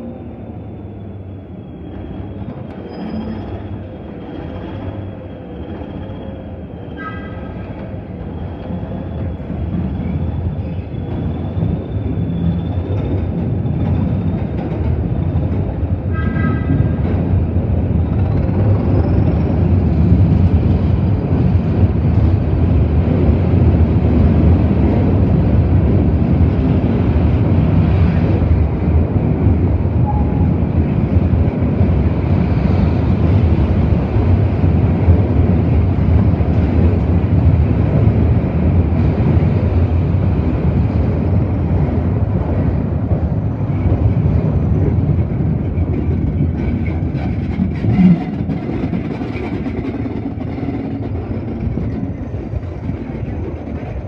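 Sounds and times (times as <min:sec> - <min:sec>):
train diesel engine: 0:00.0 - 0:54.0
wheels squealing on track: 0:01.1 - 0:07.4.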